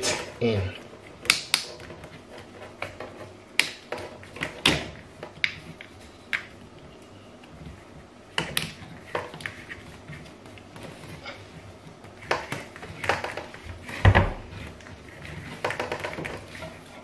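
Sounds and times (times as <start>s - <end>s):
plastic hoses clicking and knocking: 12.0s - 17.0s.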